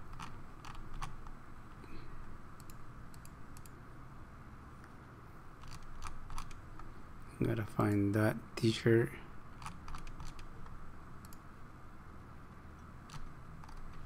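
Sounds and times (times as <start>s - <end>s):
computer mouse clicking: 0.0s - 1.4s, 2.6s - 3.8s, 5.6s - 6.9s, 9.6s - 11.4s, 12.8s - 14.0s
low steady hum: 0.0s - 14.0s.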